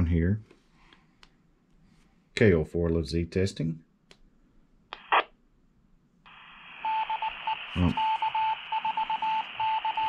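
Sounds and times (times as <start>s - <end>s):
radio hiss: 5.0s - 5.2s, 6.3s - 8.8s
repeater tone beeps: 6.8s - 10.0s.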